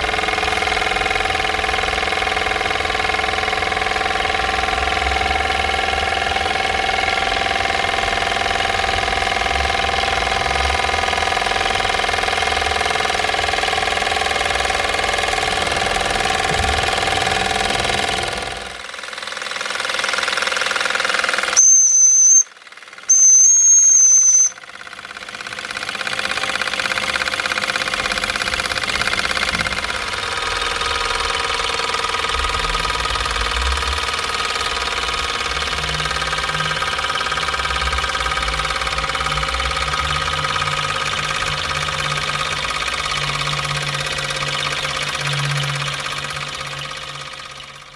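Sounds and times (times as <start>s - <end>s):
steam engine mechanical chatter: 0.0s - 47.9s
shrill steam whistle: 21.6s - 24.6s.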